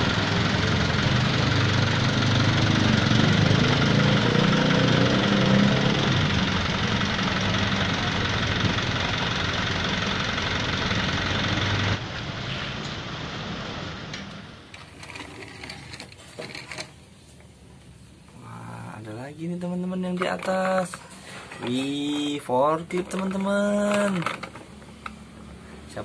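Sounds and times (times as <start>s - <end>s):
truck engine idling: 0.0s - 15.5s.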